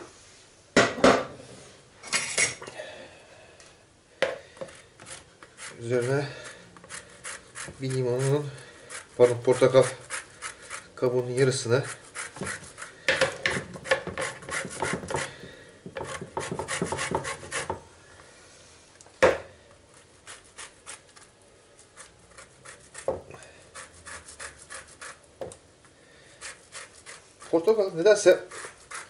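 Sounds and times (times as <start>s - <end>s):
peel rasping on metal grater: 5.0s - 13.0s, 13.8s - 15.3s, 16.0s - 17.7s, 20.2s - 23.1s, 23.7s - 25.2s, 26.4s - 29.0s.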